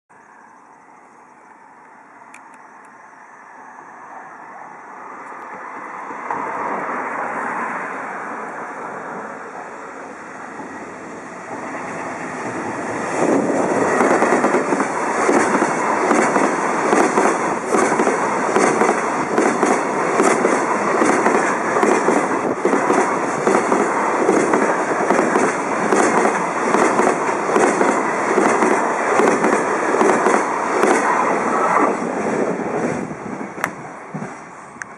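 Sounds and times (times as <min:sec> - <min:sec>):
freight train passing: 0:00.2 - 0:34.9
train wheels clacking over rail joints: 0:13.4 - 0:31.2.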